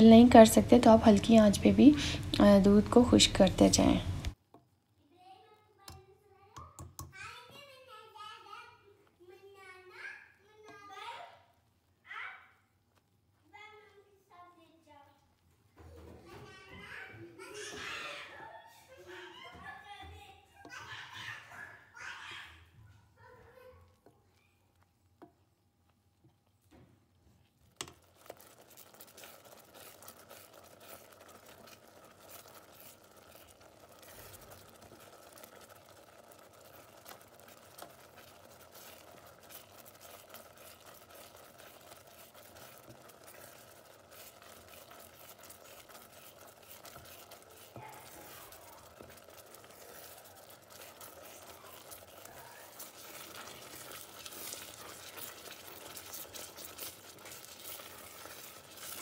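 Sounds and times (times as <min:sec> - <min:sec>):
milk bubbling: 0:00.0 - 0:04.9, 0:23.3 - 0:59.0
spoon scraping pot: 0:27.6 - 0:59.0.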